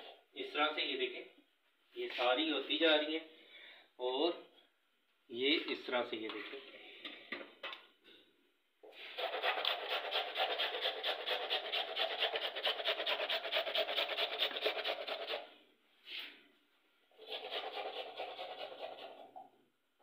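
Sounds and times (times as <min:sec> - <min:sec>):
carrots grated on metal grater: 0:09.1 - 0:15.4.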